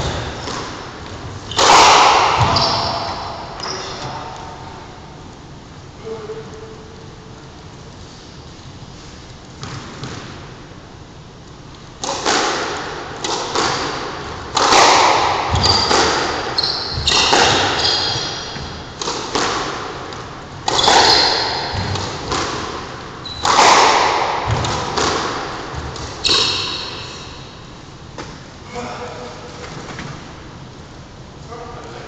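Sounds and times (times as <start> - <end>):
squash ball hits echoing: 0.0 - 4.6, 12.0 - 28.5
shoes squeaking on wooden floor: 2.4 - 4.2, 15.5 - 18.9.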